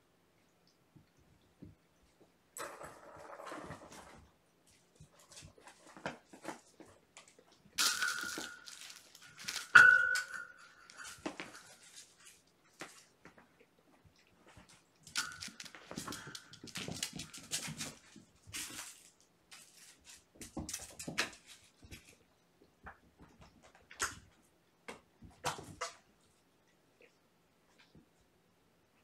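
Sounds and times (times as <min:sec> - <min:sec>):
kittens playing with toys: 0:01.6 - 0:22.3
toys clattering: 0:07.8 - 0:11.5.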